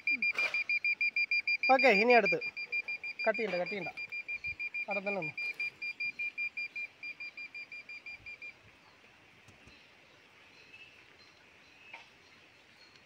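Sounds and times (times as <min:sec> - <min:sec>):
fast high beeps: 0:00.0 - 0:08.5
faint bird chirps: 0:00.0 - 0:13.0.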